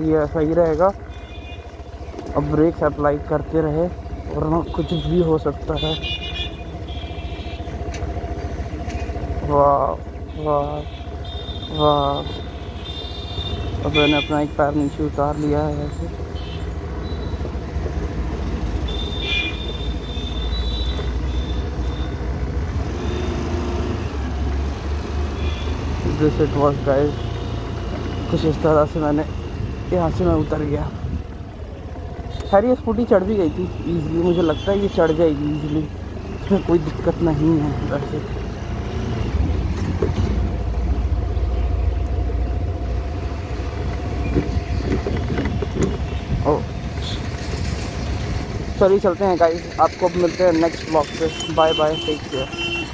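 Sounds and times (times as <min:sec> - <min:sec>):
scooter engine rumble: 0:00.0 - 0:52.9
low rumble from riding: 0:36.0 - 0:51.4.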